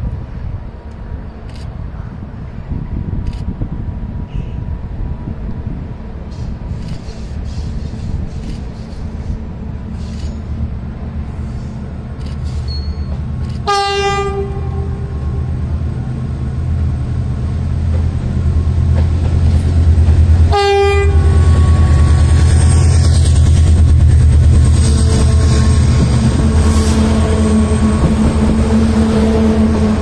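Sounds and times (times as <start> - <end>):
diesel locomotive engine drone: 0.0 - 30.0
train horn blasts: 12.9 - 15.7, 20.5 - 23.4, 24.6 - 30.0.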